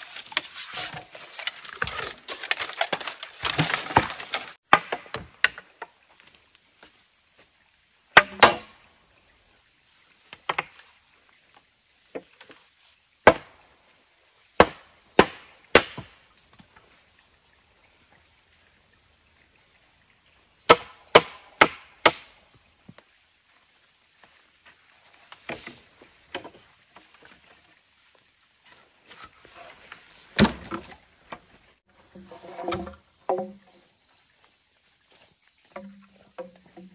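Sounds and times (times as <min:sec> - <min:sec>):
blade chopping into wood: 0:14.6 - 0:16.1.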